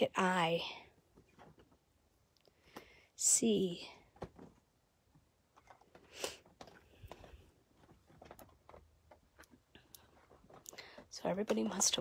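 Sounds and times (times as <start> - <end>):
soft rustle: 3.9 - 12.0.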